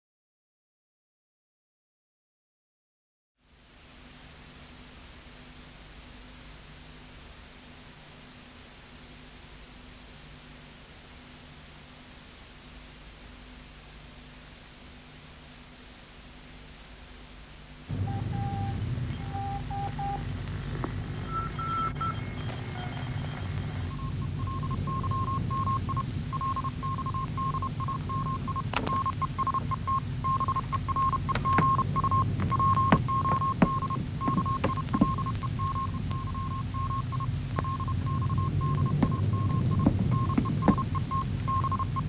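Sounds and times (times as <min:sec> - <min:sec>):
low hum and hiss: 0:03.4 - 0:42.0
morse code beeps: 0:17.9 - 0:42.0.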